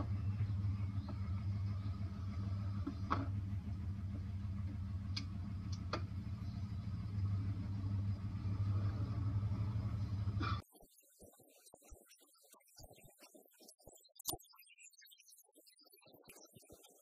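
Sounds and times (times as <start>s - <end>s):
vehicle engine idling: 0.0s - 10.6s
faint clicks: 5.1s - 6.1s.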